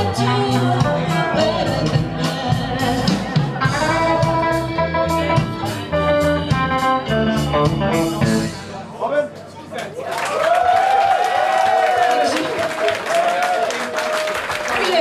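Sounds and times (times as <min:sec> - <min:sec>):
woman singing into microphone: 0:00.0 - 0:08.5
electric guitar: 0:00.0 - 0:09.6
bass guitar: 0:00.0 - 0:09.7.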